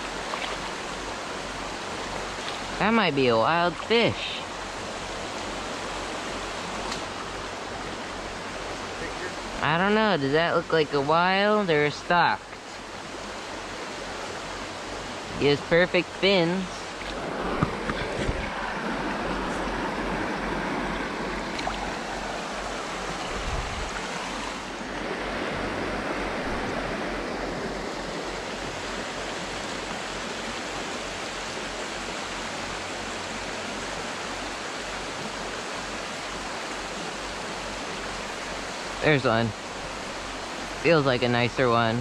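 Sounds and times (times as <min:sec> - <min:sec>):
water splash: 0:00.0 - 0:00.8, 0:20.9 - 0:24.8
water flowing over rocks: 0:00.0 - 0:42.0.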